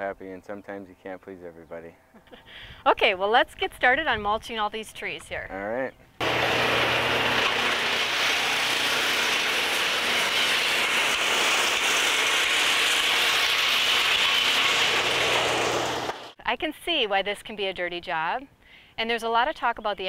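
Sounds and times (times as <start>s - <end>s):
brush chipper grinding branches: 6.2s - 16.4s.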